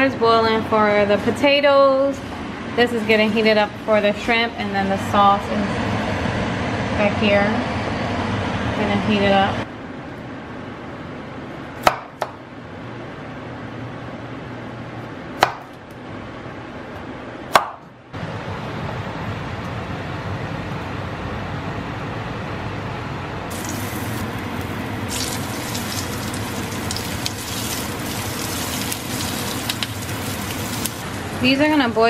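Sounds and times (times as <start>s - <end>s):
food sizzling in oil: 23.5s - 31.3s
pot of water hissing: 23.5s - 31.3s.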